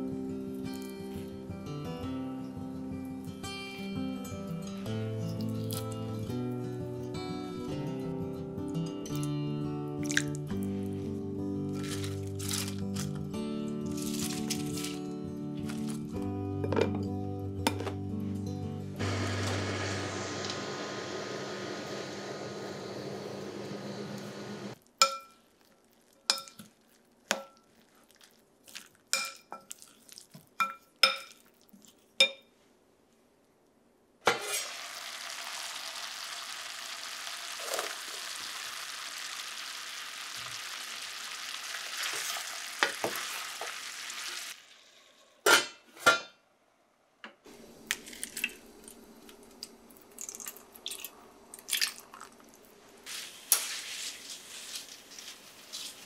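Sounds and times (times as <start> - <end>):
food sizzling in frying pan: 34.4 - 45.4, 53.0 - 56.0.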